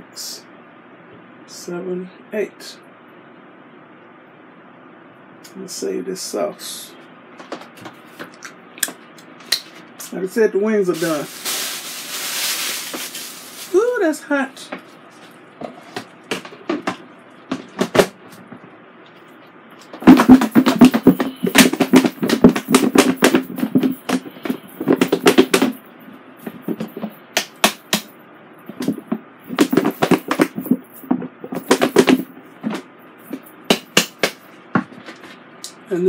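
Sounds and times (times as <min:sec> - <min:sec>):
food shaken in plastic bowl: 0:10.9 - 0:13.9, 0:20.0 - 0:25.7.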